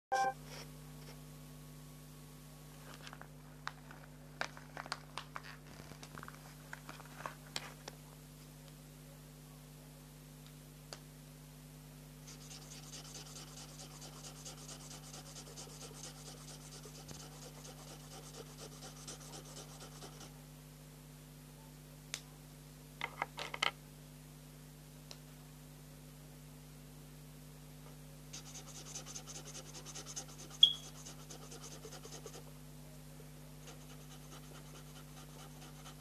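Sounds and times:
marker scribbling on paper: 12.3 - 20.3, 28.4 - 32.4, 33.6 - 36.0.

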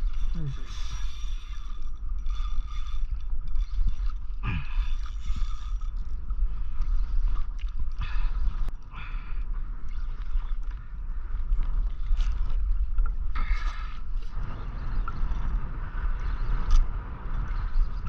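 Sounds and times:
fishing reel whirring: 0.0 - 8.8
wind on microphone: 0.0 - 18.0.

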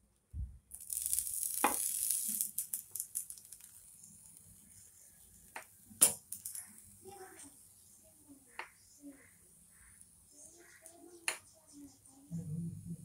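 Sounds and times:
bread sizzling in oil: 0.7 - 8.0.

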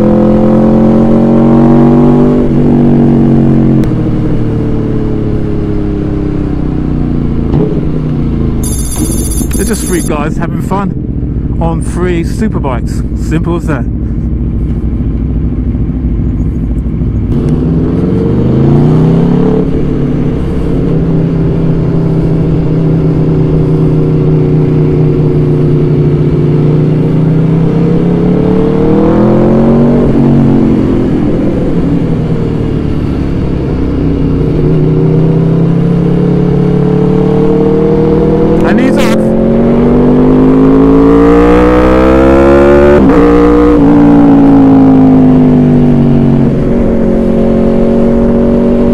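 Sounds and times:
motorcycle engine revving: 7.3 - 10.2, 15.3 - 48.9.

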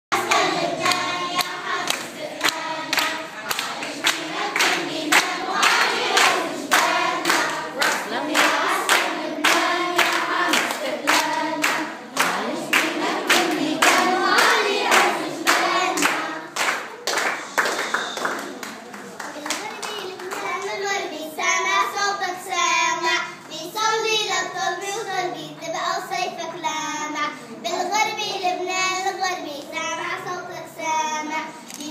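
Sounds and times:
children singing: 0.1 - 18.2
hand claps: 0.2 - 20.8.

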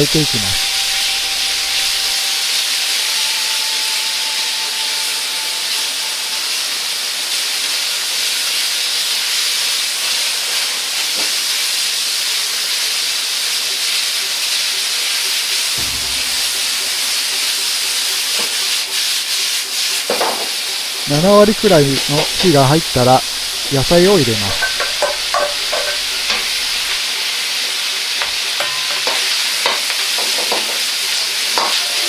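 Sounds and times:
faint whistle-like tone: 0.0 - 6.7
pork sizzling in hot oil: 0.0 - 32.0.

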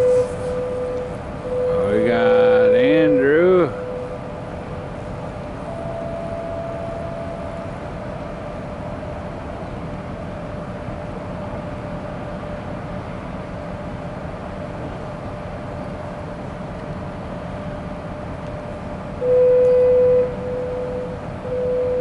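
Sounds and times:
loud train horn: 0.0 - 4.3
train hum and rumble: 0.0 - 22.0.

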